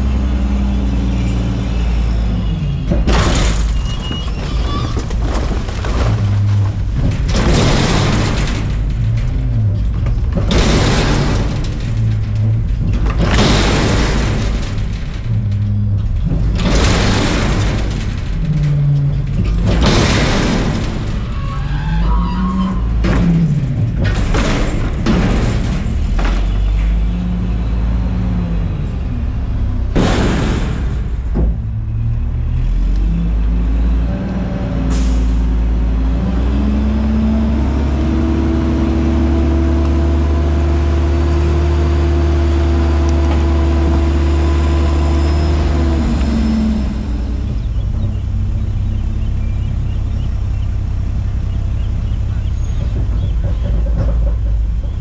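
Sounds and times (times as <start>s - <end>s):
diesel engine revving: 0.0s - 4.4s, 5.2s - 55.0s
trash bangs and crashes: 1.9s - 21.8s, 22.5s - 28.2s, 29.5s - 32.9s.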